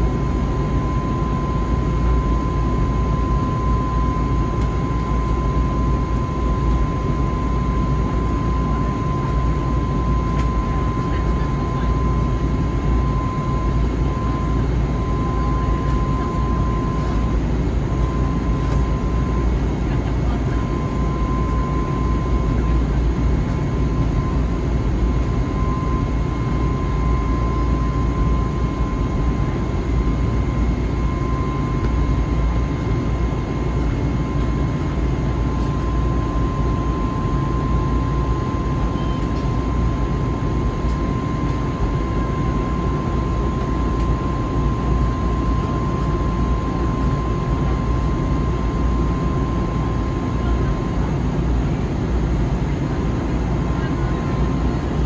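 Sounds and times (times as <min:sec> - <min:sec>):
engine and airflow roar: 0:00.0 - 0:55.0
faint higher tone: 0:38.9 - 0:39.4.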